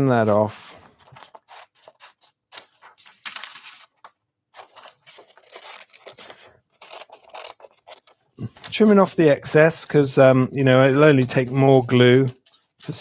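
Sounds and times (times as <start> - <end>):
scissors snipping paper: 4.6 - 8.2.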